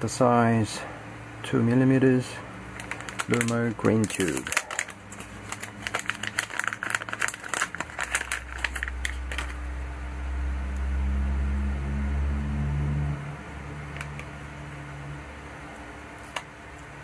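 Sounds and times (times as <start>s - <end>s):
low steady hum: 0.0s - 17.0s
plastic packet crinkling: 2.7s - 9.6s.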